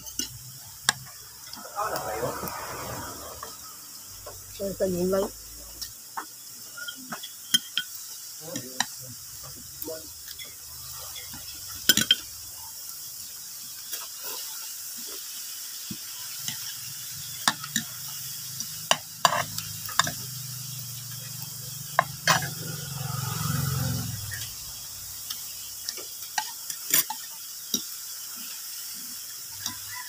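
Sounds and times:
cutlery clinking on a plate: 0:26.4 - 0:27.9.

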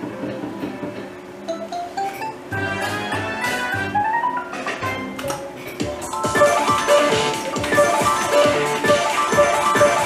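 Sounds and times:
slot machine electronic music: 0:01.7 - 0:10.0.

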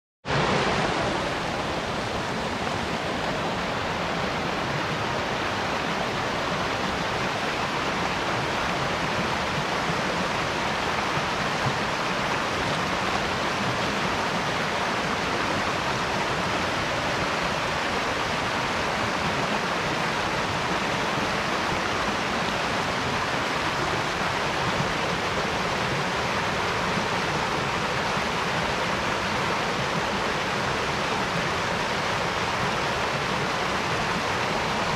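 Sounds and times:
creek water tumbling: 0:00.2 - 0:34.9.

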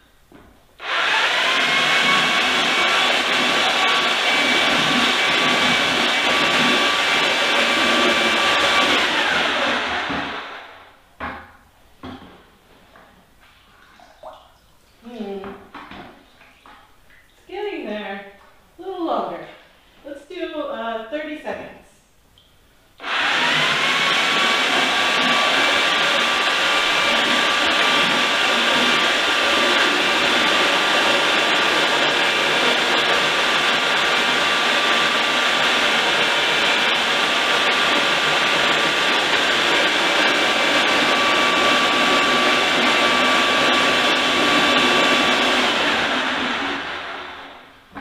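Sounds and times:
electric mixer whining: 0:00.8 - 0:10.8, 0:23.0 - 0:47.7.

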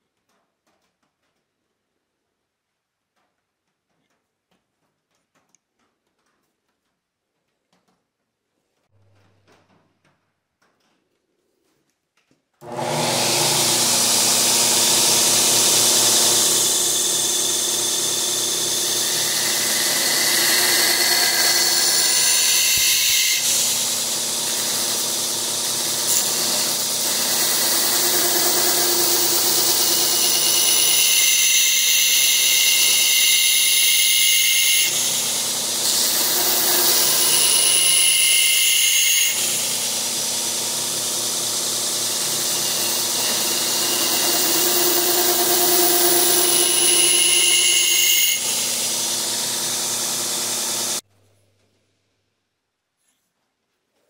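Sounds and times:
grinder motor hum: 0:12.6 - 0:51.0.

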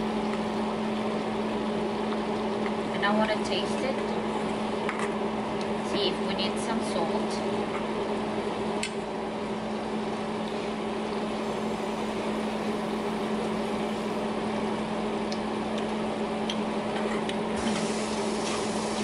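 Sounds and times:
kitchen motor humming: 0:00.0 - 0:04.8, 0:09.4 - 0:15.8, 0:17.3 - 0:19.0.

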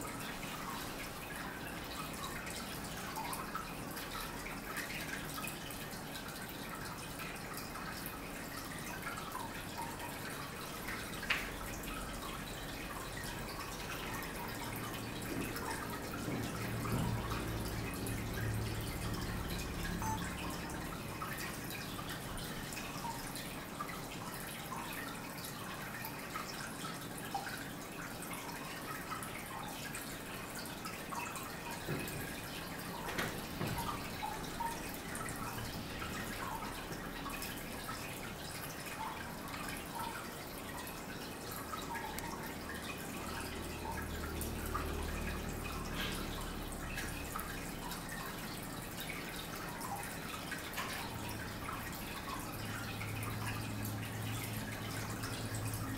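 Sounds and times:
water dripping and trickling: 0:00.0 - 0:55.9.

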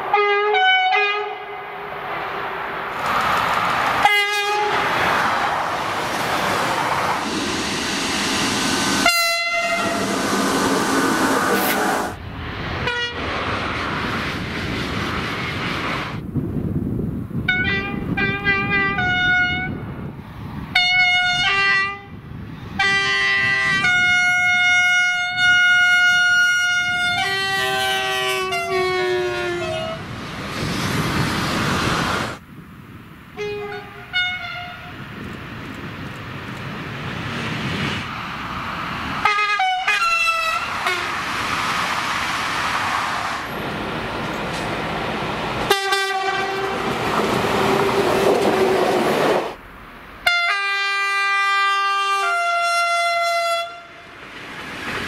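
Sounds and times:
train passing at speed: 0:00.0 - 0:55.0
two-tone train horn: 0:00.1 - 0:01.6, 0:04.0 - 0:04.8, 0:09.0 - 0:10.1, 0:12.8 - 0:13.2, 0:17.5 - 0:19.8, 0:20.7 - 0:22.1, 0:22.8 - 0:30.0, 0:33.4 - 0:35.0, 0:39.2 - 0:41.1, 0:45.7 - 0:46.9, 0:50.2 - 0:54.0.

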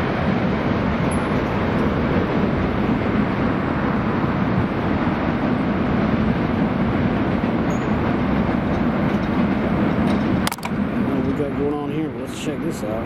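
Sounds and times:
freight train wheels rumbling: 0:00.0 - 0:13.0.

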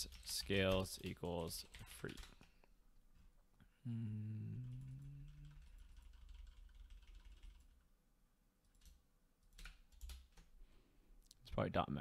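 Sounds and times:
soft keyboard typing: 0:00.0 - 0:02.7, 0:04.6 - 0:07.9, 0:08.6 - 0:10.5
man humming: 0:03.7 - 0:06.0.

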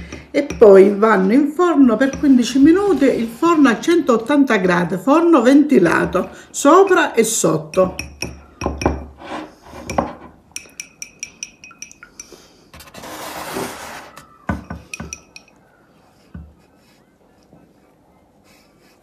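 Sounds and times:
brush clinking against ceramic cup: 0:07.7 - 0:09.2, 0:09.8 - 0:12.5, 0:14.6 - 0:15.6.

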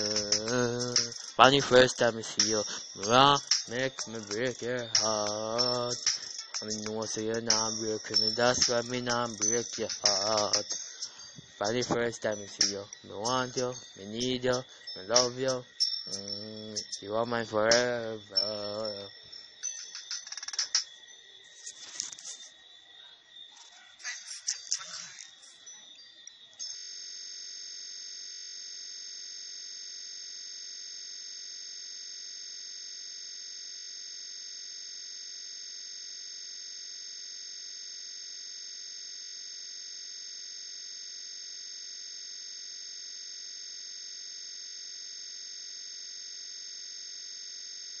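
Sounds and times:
steady electronic tone: 0:00.0 - 0:21.0.

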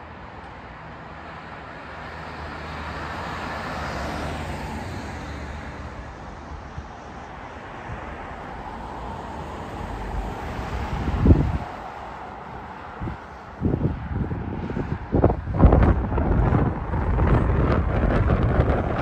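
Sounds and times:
car passing by: 0:00.6 - 0:19.0.

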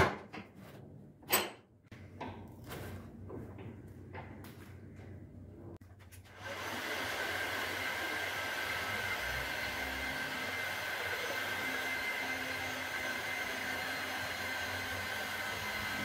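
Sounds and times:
heat gun blowing air: 0:06.3 - 0:16.0.

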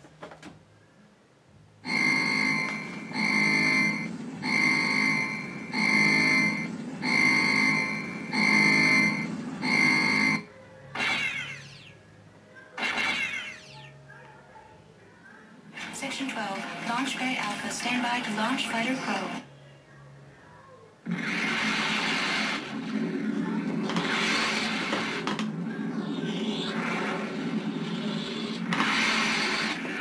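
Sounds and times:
alarm-like horn blaring: 0:01.8 - 0:10.5
falling electronic sweeps: 0:01.9 - 0:12.0.

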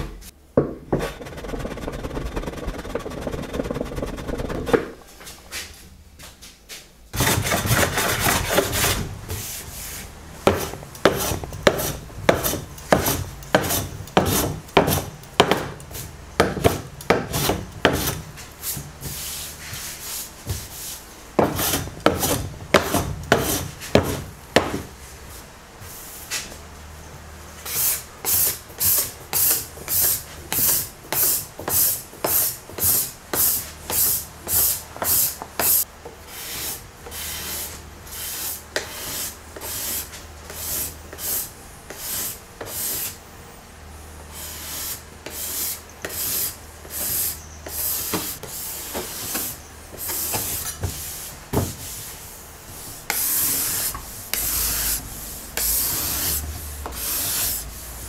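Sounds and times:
scraper scraping wooden desk: 0:00.9 - 0:05.0, 0:07.2 - 0:15.1, 0:53.0 - 0:57.7.

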